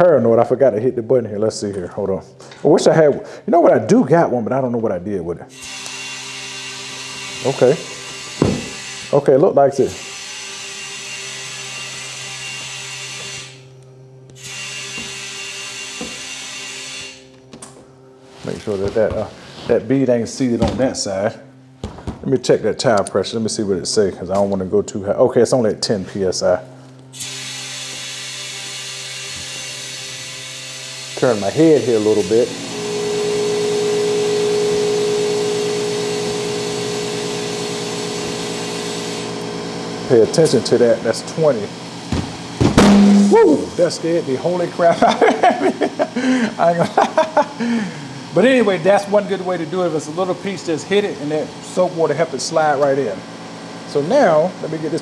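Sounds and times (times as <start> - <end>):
air compressor running: 5.5 - 19.9, 27.1 - 55.0
steady hum: 31.2 - 55.0.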